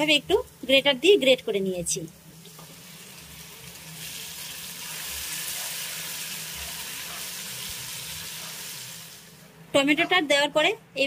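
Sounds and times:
tomato sizzling in hot oil: 0:00.0 - 0:09.5.

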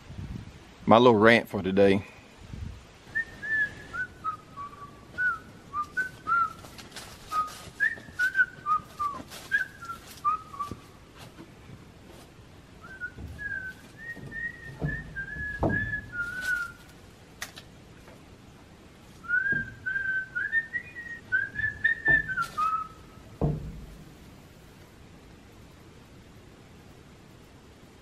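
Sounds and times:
person whistling a tune: 0:03.1 - 0:06.7, 0:07.3 - 0:10.9, 0:12.8 - 0:16.8, 0:19.2 - 0:23.0
wooden door board knocks: 0:14.2 - 0:16.1, 0:23.4 - 0:24.2.

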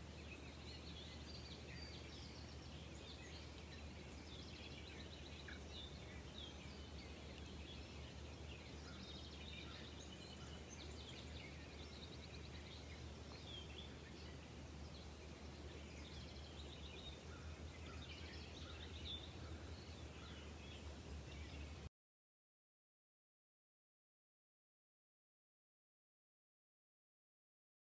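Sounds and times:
small birds chirping: 0:00.0 - 0:21.9.

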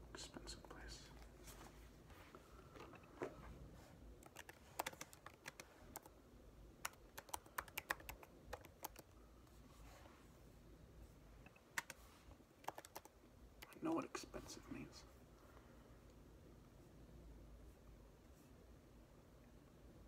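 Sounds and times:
fingers typing on keyboard: 0:04.2 - 0:06.1, 0:06.8 - 0:09.2, 0:11.5 - 0:12.0, 0:12.6 - 0:13.8.

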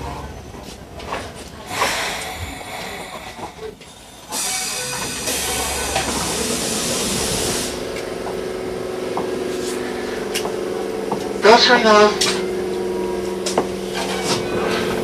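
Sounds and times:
train equipment humming: 0:00.0 - 0:15.0
compressed air hiss: 0:01.7 - 0:07.8.

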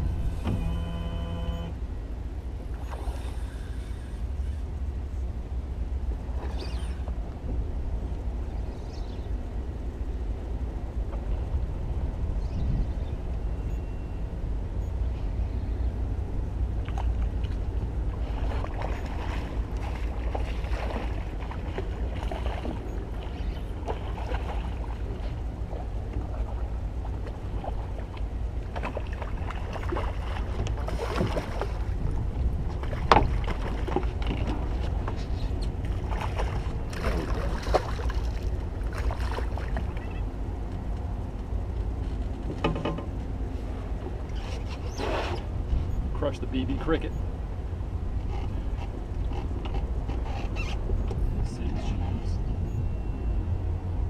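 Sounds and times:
wind and water against hull: 0:00.0 - 0:54.0
water splashes: 0:16.8 - 0:40.3
knocks on boat: 0:32.8 - 0:35.2, 0:42.5 - 0:43.2.

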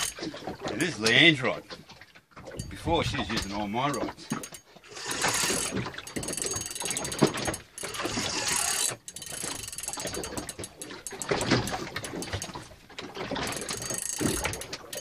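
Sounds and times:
fishing reel ratcheting clicks: 0:03.3 - 0:12.6, 0:13.4 - 0:15.0.

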